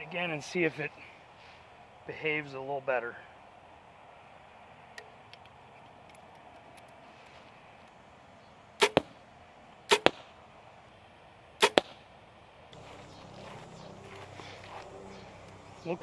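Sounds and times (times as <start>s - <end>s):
compound bow shots: 8.8s - 9.2s, 9.9s - 10.3s, 11.6s - 12.0s.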